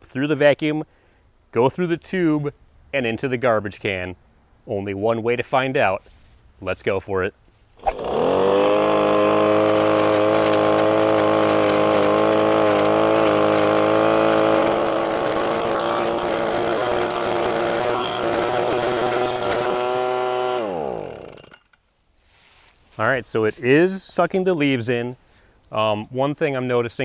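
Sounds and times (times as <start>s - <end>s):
leaf vacuum engine revving: 7.8s - 21.6s.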